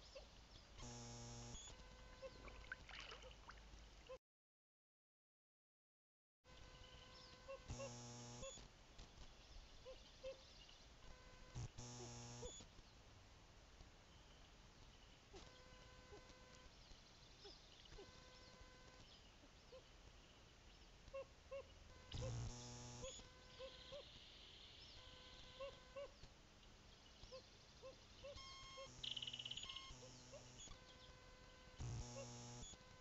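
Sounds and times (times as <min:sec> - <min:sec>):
electrical buzzing: 0:00.8 - 0:02.1, 0:07.7 - 0:08.6, 0:11.5 - 0:12.6, 0:22.1 - 0:23.2, 0:31.5 - 0:32.8
small bird chirps: 0:14.1 - 0:26.2, 0:26.9 - 0:32.7.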